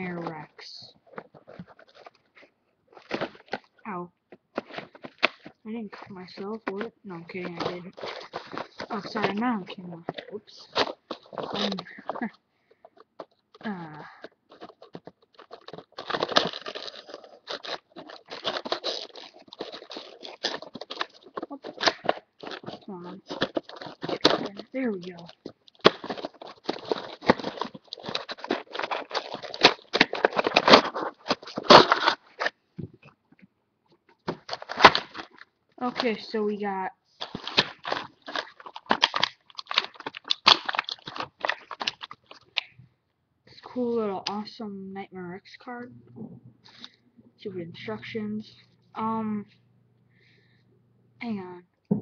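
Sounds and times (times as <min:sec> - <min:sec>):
packaging being torn and crinkled: 0:00.2 - 0:03.8, 0:04.5 - 0:32.6, 0:34.2 - 0:36.4, 0:37.2 - 0:42.7.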